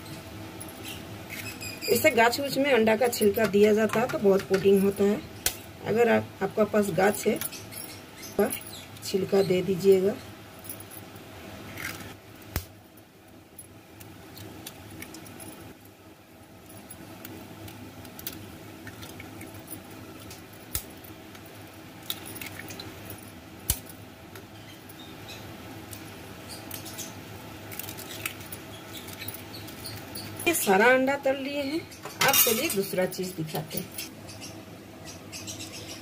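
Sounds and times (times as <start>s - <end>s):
steady low hum: 0.0s - 36.0s
eggshells cracking: 16.8s - 21.0s, 22.0s - 23.0s, 27.6s - 30.4s.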